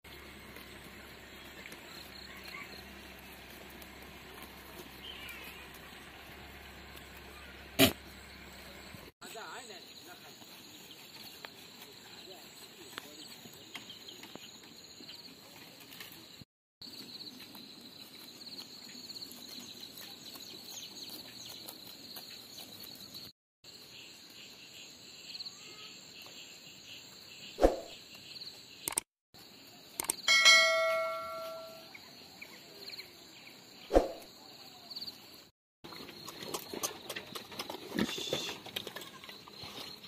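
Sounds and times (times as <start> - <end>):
metal bell ringing: 30.3 - 31.9.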